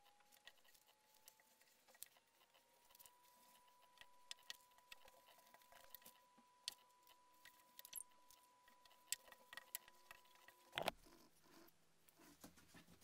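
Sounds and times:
faint steady high tone: 0.0s - 10.9s
glue stick rubbing on paper: 0.1s - 6.1s.

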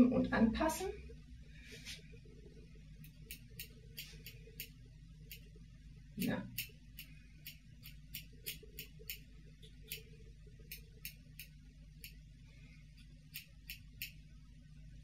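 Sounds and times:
low steady hum: 0.0s - 15.0s
scissors snipping hair: 3.1s - 5.5s, 6.2s - 10.1s, 13.3s - 14.2s.

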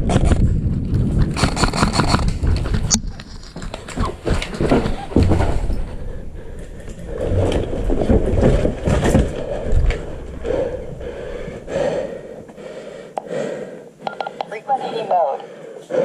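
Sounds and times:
footsteps: 1.0s - 13.3s
breathing: 5.8s - 7.8s, 9.2s - 16.0s.

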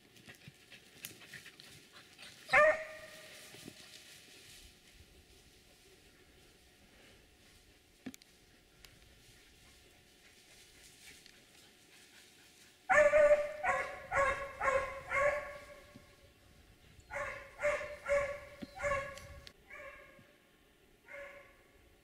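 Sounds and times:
dog barking: 2.5s - 3.2s, 12.9s - 15.8s, 17.1s - 20.2s, 21.1s - 21.6s.

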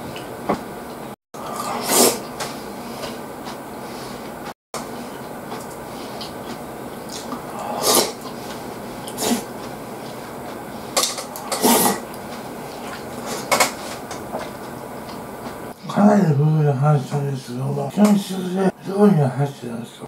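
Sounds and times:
chewing and slurping: 4.8s - 15.5s.

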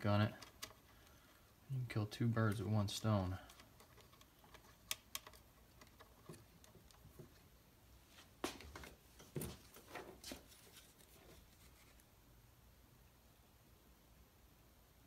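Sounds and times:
tools and wire clicking: 3.4s - 7.0s.

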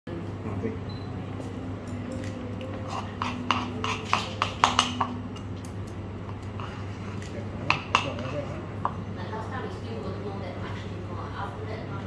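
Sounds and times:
steady low hum: 0.1s - 12.0s
metal utensil tapping on plates: 2.9s - 5.2s, 7.6s - 9.0s.

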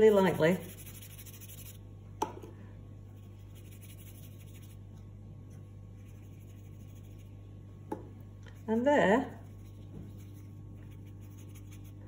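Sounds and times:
paintbrush brushing on paper: 0.0s - 1.8s, 3.2s - 4.8s, 5.9s - 7.4s, 9.4s - 12.0s
steady low hum: 0.0s - 12.0s.

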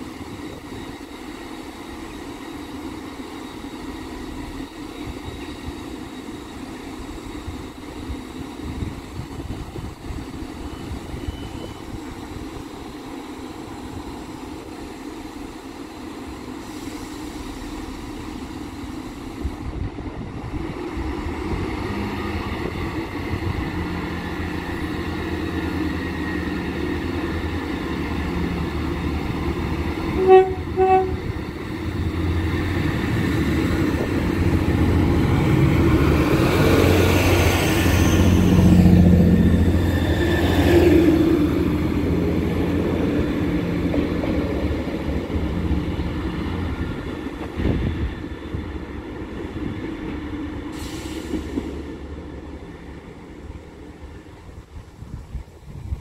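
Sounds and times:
train engine and wheels passing: 0.0s - 56.0s
train horn toots: 30.1s - 31.4s.

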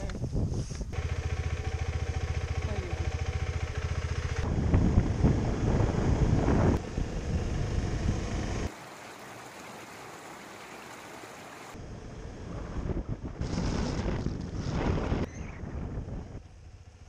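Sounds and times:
wind rushing over microphone: 0.0s - 1.0s, 4.4s - 8.7s, 11.8s - 16.8s
motorcycle running: 0.9s - 8.7s, 15.7s - 17.0s
flowing creek: 8.4s - 11.8s.

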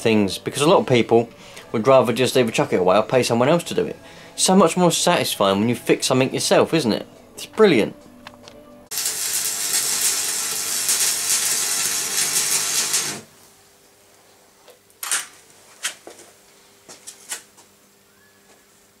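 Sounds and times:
welding arc crackling: 8.9s - 13.3s.

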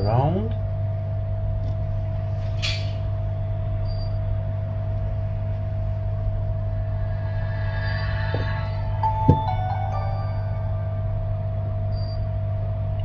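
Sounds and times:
steady low hum: 0.0s - 13.0s
faint constant tone: 6.2s - 13.0s
soft scrape: 6.7s - 9.1s.

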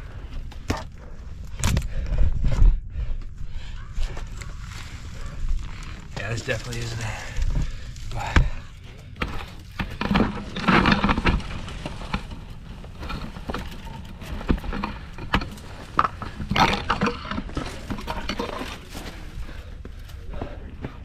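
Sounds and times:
heavy breathing: 0.0s - 10.8s, 17.2s - 21.0s
hands and boots scraping rock: 4.2s - 19.6s.

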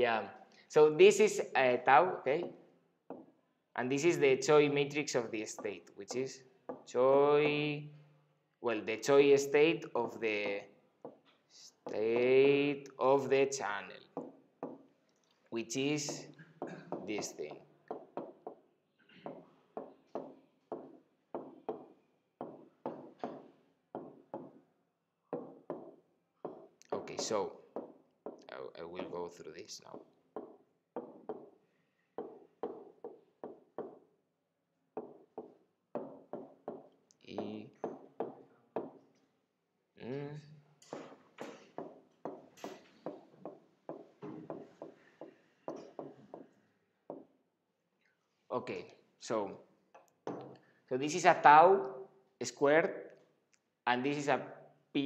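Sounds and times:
stylus tapping on glass: 2.4s - 3.3s, 14.2s - 14.9s, 16.0s - 24.6s, 25.3s - 28.5s, 29.9s - 31.6s, 32.2s - 34.0s, 35.0s - 39.1s, 40.8s - 47.3s.

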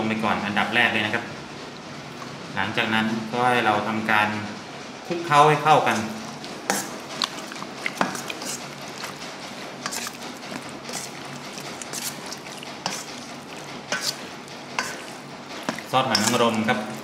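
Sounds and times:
wet squelching of meat: 5.9s - 17.0s
spoon clinking against bowl: 14.8s - 16.7s.

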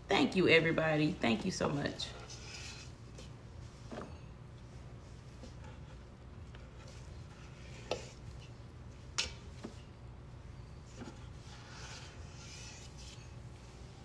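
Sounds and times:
spatula scraping metal bowl: 2.0s - 3.0s, 11.0s - 13.4s.

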